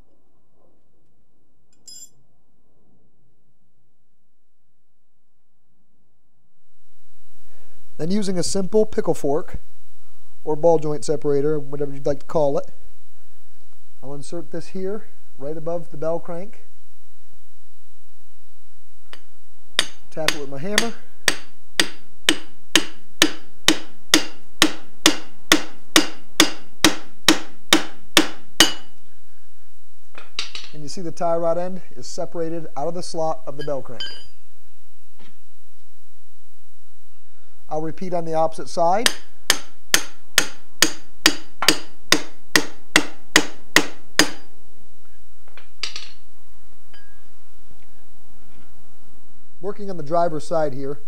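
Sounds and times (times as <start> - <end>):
hammer striking metal: 19.8 - 28.9, 39.0 - 44.4.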